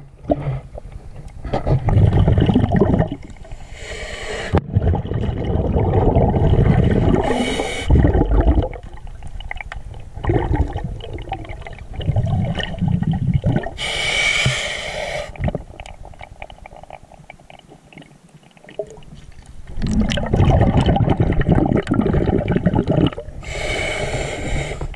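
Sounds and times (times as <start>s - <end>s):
underwater bubbles gurgling: 0.0s - 3.6s, 4.5s - 13.8s, 15.3s - 23.5s
regulator hissing inhale: 3.5s - 4.6s, 7.2s - 7.9s, 13.8s - 15.4s, 23.4s - 24.9s.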